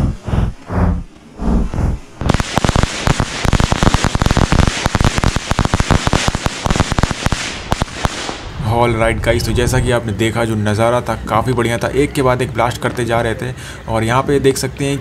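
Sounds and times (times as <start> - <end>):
firecrackers popping: 2.2 - 8.6.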